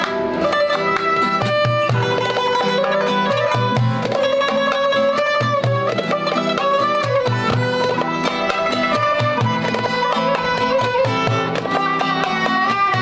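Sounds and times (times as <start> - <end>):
acoustic guitar: 0.0 - 13.0
bowed spike fiddle melody: 0.0 - 13.0
hand drum beat: 0.0 - 13.0
plucked long-necked lute: 0.0 - 13.0.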